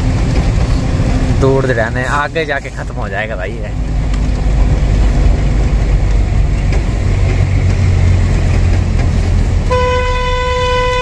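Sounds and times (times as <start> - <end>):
truck engine and road rumble: 0.0 - 11.0
vehicle horn: 9.6 - 11.0.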